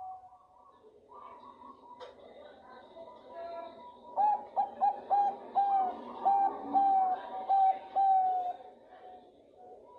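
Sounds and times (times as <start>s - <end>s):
dove cooing: 4.0s - 8.7s.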